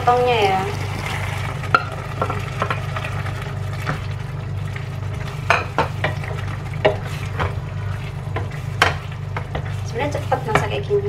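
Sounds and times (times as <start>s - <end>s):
low steady hum: 0.0s - 11.0s
spatula scraping a pan: 5.2s - 11.0s.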